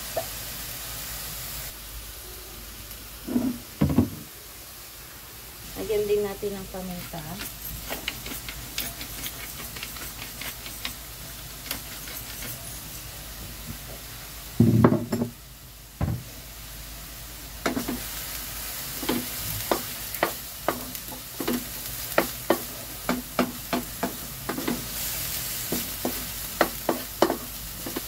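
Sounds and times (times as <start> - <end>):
light sizzle: 0.0 - 28.0
knocks on wok: 3.8 - 4.2, 14.6 - 15.4, 16.0 - 16.3
utensil scraping metal wok: 6.6 - 13.2, 17.7 - 28.0.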